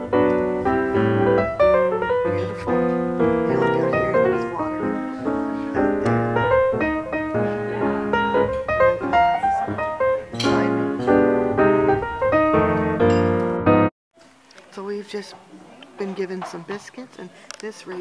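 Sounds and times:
solo piano music: 0.0 - 13.9.

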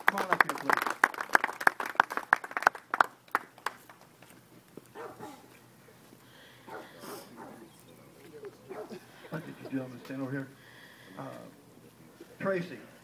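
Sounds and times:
hand clapping applause: 0.0 - 4.1.

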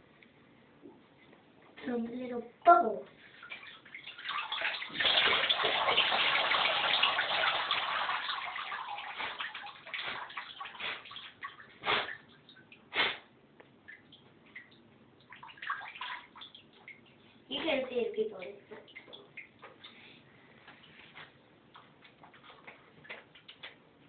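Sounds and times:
water splashes: 3.2 - 20.0, 21.6 - 23.8
water pouring off toy boat: 4.4 - 11.0.

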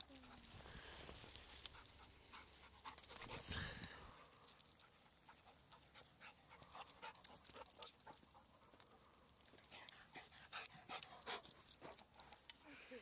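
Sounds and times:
dog paws on rock and grass: 0.0 - 12.6.

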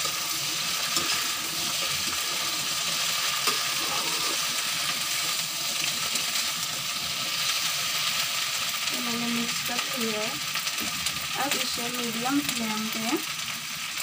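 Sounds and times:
metal spatula scraping a pan: 0.0 - 6.5
okra sizzling in oil: 0.0 - 14.0.

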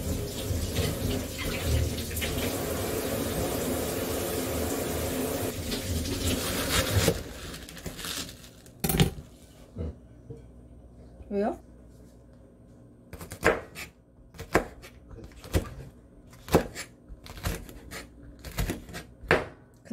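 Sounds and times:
kitchen tap running: 0.0 - 7.4
knife chopping on cutting board: 13.1 - 19.6.

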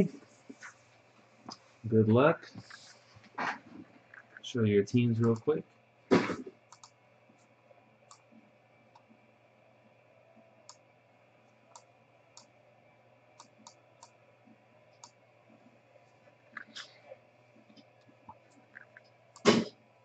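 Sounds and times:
computer mouse clicks: 5.2 - 5.5, 6.7 - 7.5, 8.1 - 8.3, 10.6 - 10.8, 11.7 - 12.5, 13.4 - 14.2.

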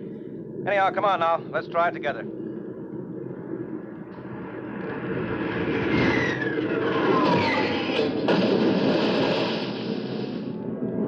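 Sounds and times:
aircraft engines rushing: 3.8 - 11.0.

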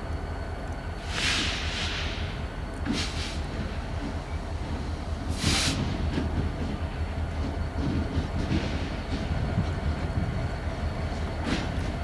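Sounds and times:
diesel locomotive engine rumble: 0.0 - 12.0
short hiss: 1.0 - 3.5, 5.3 - 6.0.

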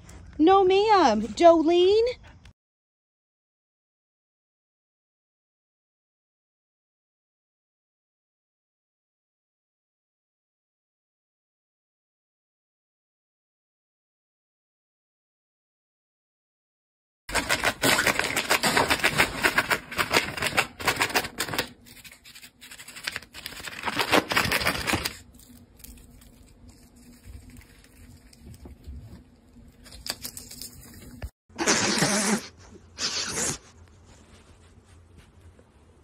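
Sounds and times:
bird tearing paper: 17.3 - 28.9, 29.7 - 31.3.

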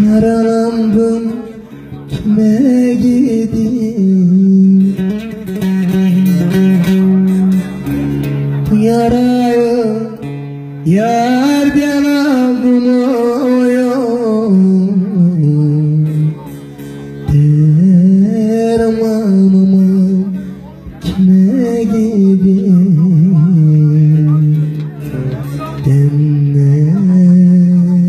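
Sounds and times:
plucked lute: 0.0 - 28.0
man singing long wavering notes: 10.8 - 16.5, 21.0 - 28.0.

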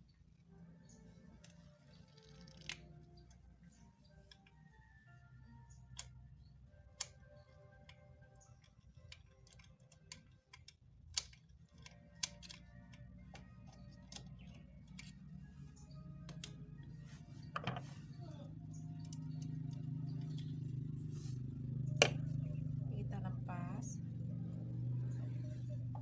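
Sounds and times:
small metal clicks: 7.0 - 15.2.

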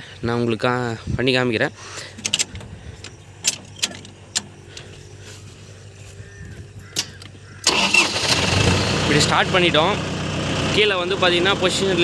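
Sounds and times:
tractor controls clicking: 2.1 - 5.0, 6.4 - 8.4.

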